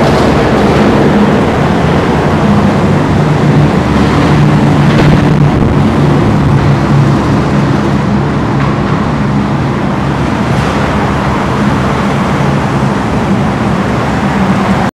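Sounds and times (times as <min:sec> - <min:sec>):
traffic engine hum: 0:00.0 - 0:14.9
truck driving past: 0:00.0 - 0:14.9.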